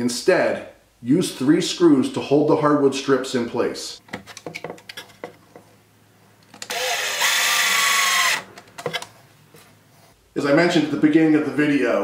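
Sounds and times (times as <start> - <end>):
cordless drill driving screw: 6.6 - 8.5.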